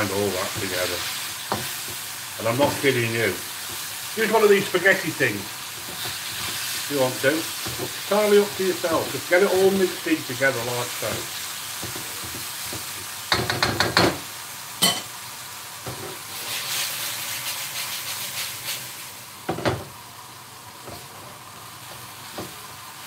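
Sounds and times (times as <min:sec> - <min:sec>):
food sizzling in a wok: 0:00.0 - 0:23.0
wooden utensils knocking on wok: 0:11.8 - 0:14.2.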